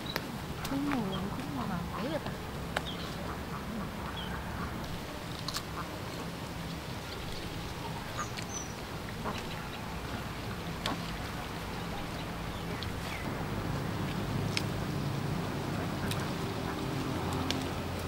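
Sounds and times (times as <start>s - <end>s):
steady low hum: 0.0s - 18.0s
ducks quacking: 0.6s - 6.0s, 7.7s - 18.0s
branches clicking and rustling: 4.6s - 9.8s, 12.0s - 18.0s.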